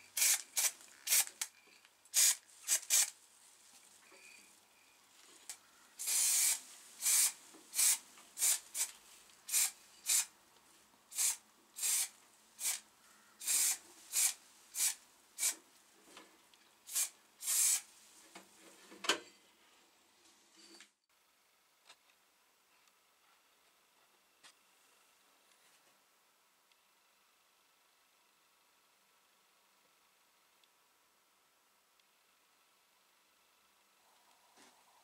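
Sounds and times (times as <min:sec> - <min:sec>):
paint spraying in hissing bursts: 0:02.1 - 0:03.2, 0:06.0 - 0:10.3, 0:11.1 - 0:12.8, 0:13.4 - 0:15.6, 0:16.9 - 0:17.9.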